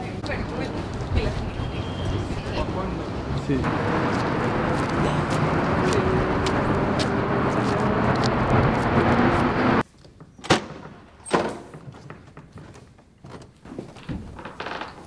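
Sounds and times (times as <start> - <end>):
city street traffic noise: 0.0 - 9.9.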